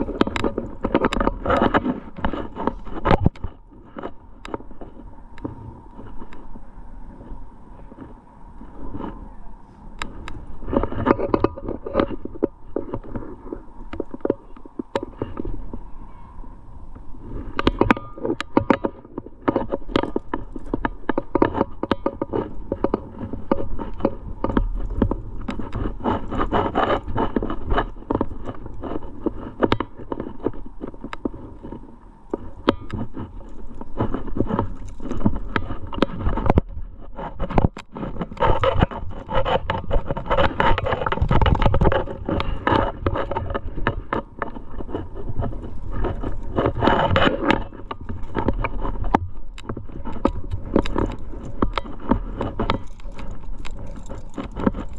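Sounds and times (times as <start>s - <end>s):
hands and shoes rubbing on rock: 17.1s - 54.9s
climbing gear clinking: 37.2s - 54.9s.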